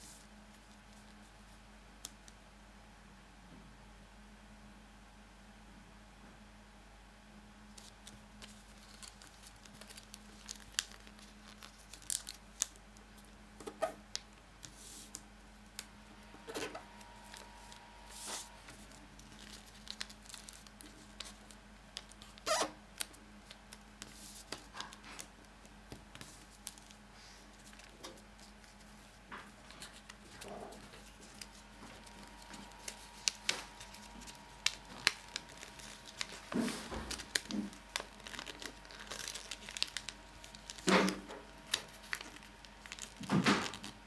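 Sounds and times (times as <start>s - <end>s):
paper being folded and creased: 7.8s - 13.9s, 15.8s - 25.3s, 26.0s - 44.0s.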